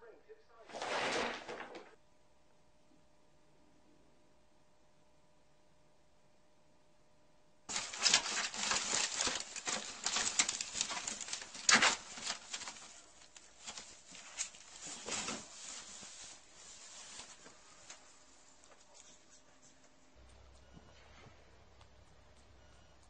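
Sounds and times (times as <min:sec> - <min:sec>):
plastic bag crinkling: 0:07.7 - 0:19.2.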